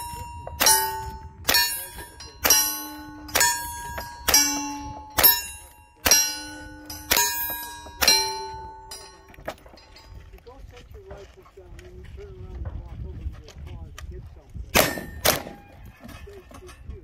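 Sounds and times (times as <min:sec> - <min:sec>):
steel plate ringing: 0:00.0 - 0:10.1
rifle shots: 0:00.6 - 0:08.8, 0:14.8 - 0:15.6.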